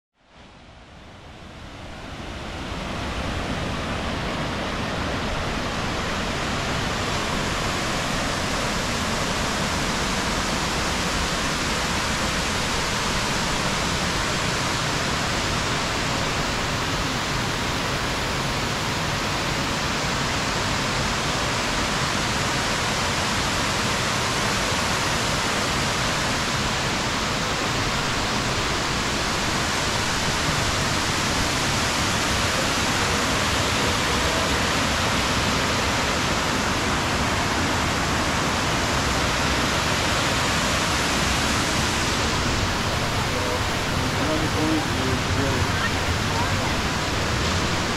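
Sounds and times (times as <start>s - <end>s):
waterfall rushing: 1.5s - 47.9s.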